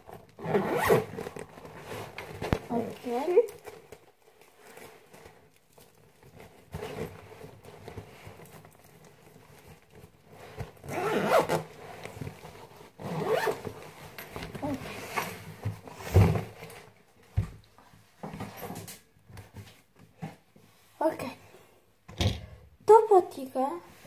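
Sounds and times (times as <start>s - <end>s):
bag handling rustle: 0.0s - 16.9s
zipper rasping: 0.2s - 2.9s, 10.3s - 12.1s, 12.9s - 16.4s.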